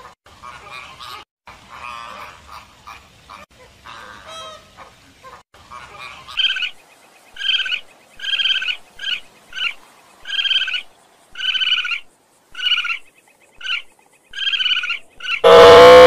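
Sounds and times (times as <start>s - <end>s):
animal short calls: 15.4s - 16.0s
loud long rising animal call: 15.4s - 16.0s.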